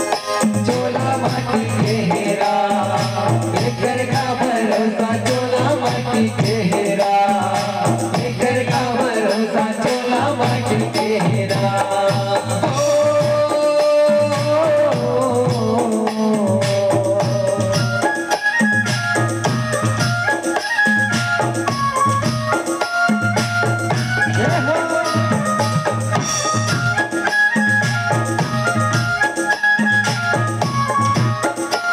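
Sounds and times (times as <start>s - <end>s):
man singing into a microphone: 0.0s - 19.5s, 23.2s - 27.2s
hand-drum beat: 0.0s - 31.9s.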